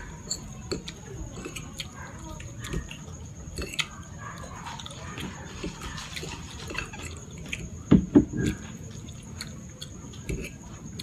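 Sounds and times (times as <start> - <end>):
wet chewing of pasta: 0.0 - 11.0.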